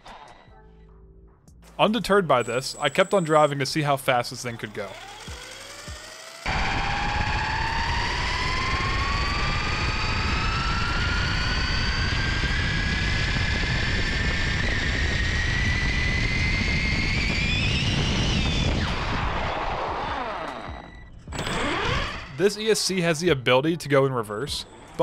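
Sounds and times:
electric motor whining: 2.1 - 22.5
constant rushing noise: 6.5 - 22.2.

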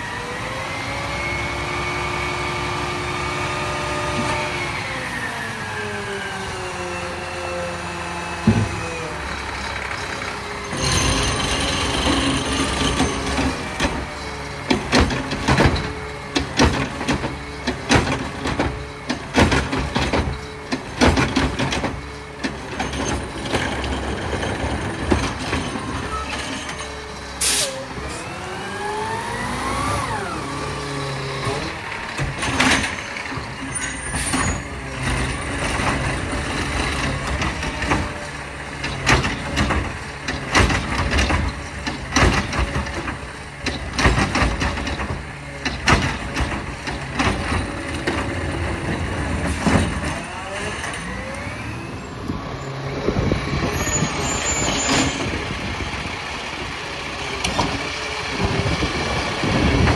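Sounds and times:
garbage truck engine running: 8.0 - 59.9
air brake hiss: 27.4 - 27.8
clanks of lifting arm and cart: 38.8 - 51.0.

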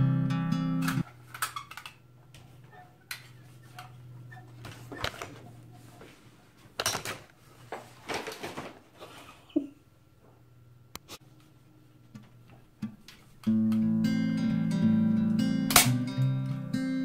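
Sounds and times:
acoustic guitar music: 0.0 - 1.0, 12.8 - 17.0.

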